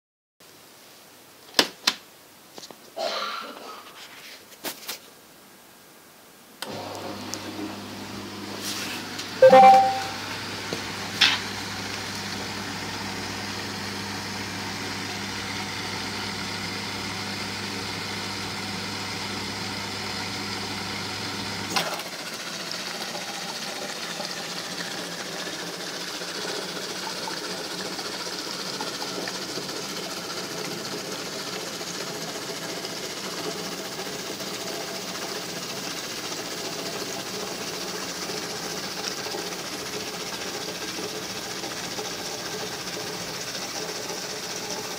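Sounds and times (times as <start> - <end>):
click: 6.6 - 7.4
dishwasher low hum: 6.6 - 15.0.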